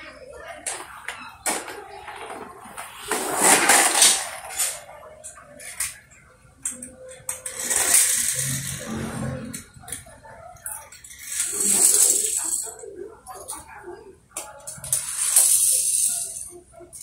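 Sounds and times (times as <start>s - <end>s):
toy cars scraping on concrete: 2.0s - 6.0s, 7.3s - 10.0s, 10.6s - 12.8s, 14.7s - 16.6s.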